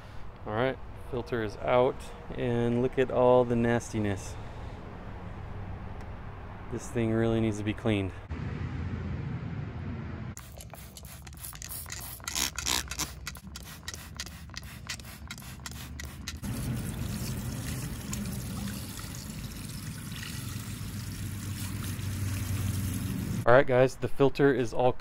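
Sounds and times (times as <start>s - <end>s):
spray bottle hissing: 10.4s - 17.4s
water from hose splashing: 10.4s - 23.5s.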